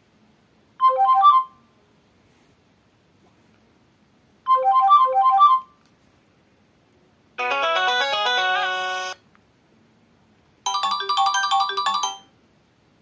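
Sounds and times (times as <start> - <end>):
synthesized ringtone from loudspeaker: 7.4 - 9.2, 10.7 - 12.4.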